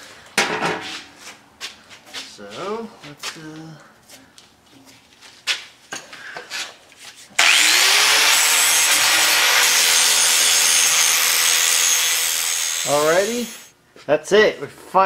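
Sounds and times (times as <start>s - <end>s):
angle grinder grinding metal: 7.4s - 13.7s.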